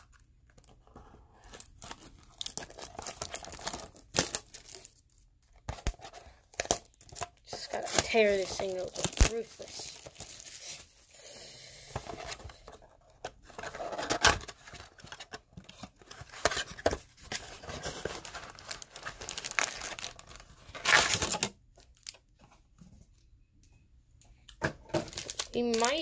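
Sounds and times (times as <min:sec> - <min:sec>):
paper and plastic tearing: 0:05.7 - 0:10.9, 0:13.6 - 0:22.2, 0:25.0 - 0:26.0.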